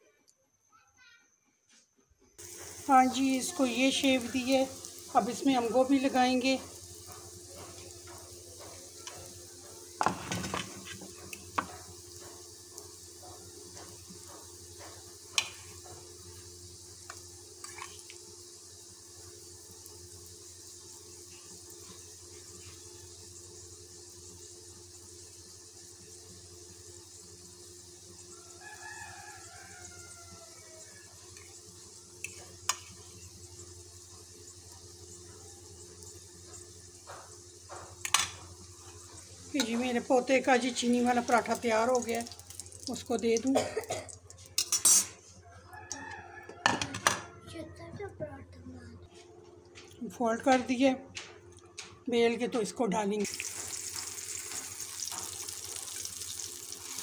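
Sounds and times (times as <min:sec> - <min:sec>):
faint sizzle of frying bread: 0:02.3 - 0:57.0
rooster crowing: 0:28.2 - 0:31.4, 0:45.3 - 0:47.8
metal spoon scraping ceramic plate: 0:44.6 - 0:45.2.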